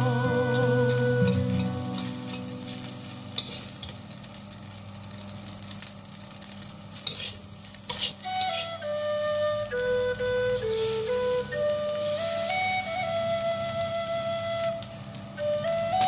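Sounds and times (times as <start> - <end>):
flute-like background music: 0.0 - 2.9, 8.2 - 16.0
spatula scraping a wok: 0.0 - 4.0, 7.0 - 9.1
rice sizzling in a wok: 0.0 - 16.0.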